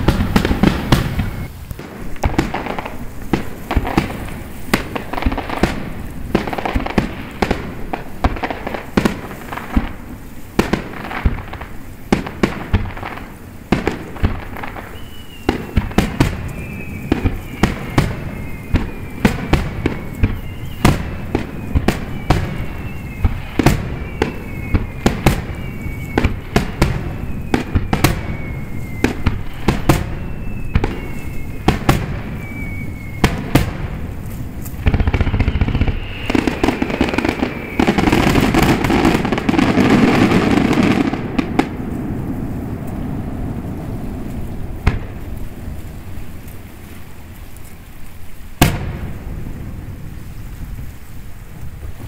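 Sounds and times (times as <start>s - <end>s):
high falling whistle: 0.0s - 1.6s, 14.8s - 33.6s, 34.9s - 41.1s
firework bangs and crackling: 0.0s - 52.0s.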